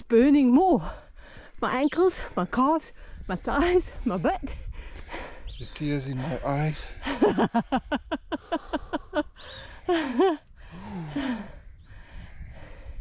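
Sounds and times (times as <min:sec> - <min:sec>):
person laughing breathily: 0:06.9 - 0:11.6
person sighing and gasping: 0:09.6 - 0:11.6.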